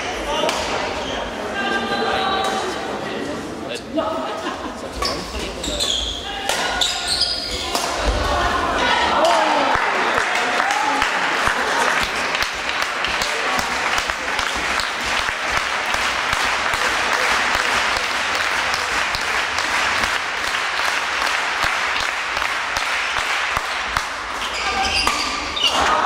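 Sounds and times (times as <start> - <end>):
spectators applauding: 9.2 - 24.1.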